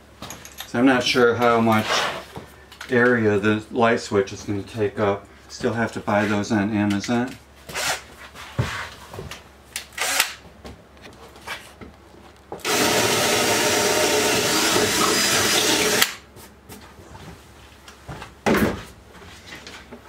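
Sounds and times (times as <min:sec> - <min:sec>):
cordless drill boring wood: 0:12.6 - 0:16.2.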